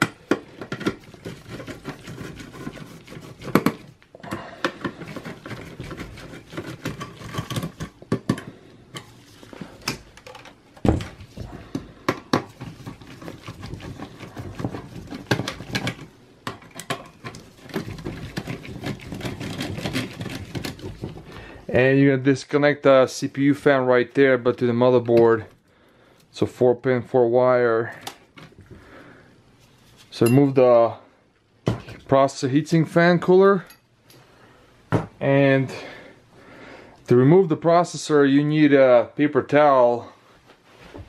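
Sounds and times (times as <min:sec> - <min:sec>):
screwdriver clicking and scraping metal: 0:00.6 - 0:04.0, 0:04.6 - 0:08.0, 0:12.5 - 0:21.2.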